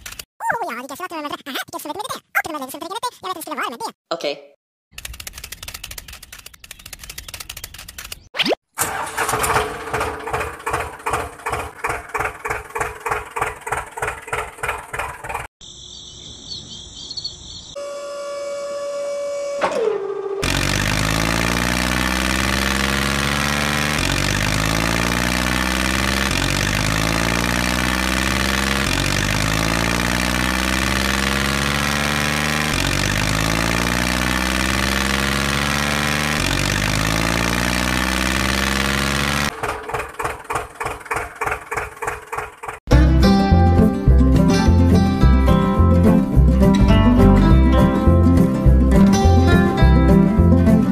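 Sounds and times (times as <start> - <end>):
tractor engine chugging: 8.8 - 15.5, 20.4 - 42.8.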